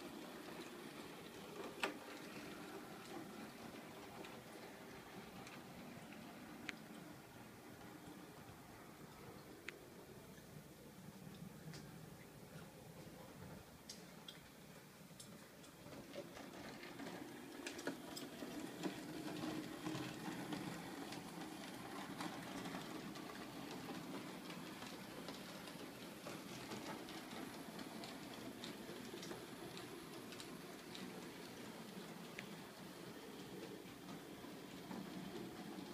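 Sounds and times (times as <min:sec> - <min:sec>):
wheels clicking over rail joints: 0:00.0 - 0:35.9
model train motor hum: 0:15.8 - 0:35.9.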